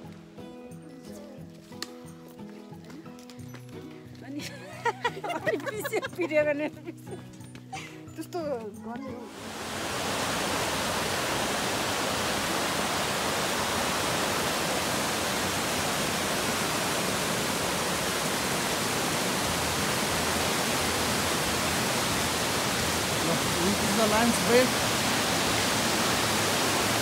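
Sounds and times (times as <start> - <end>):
creek rushing over rocks: 9.2 - 27.0.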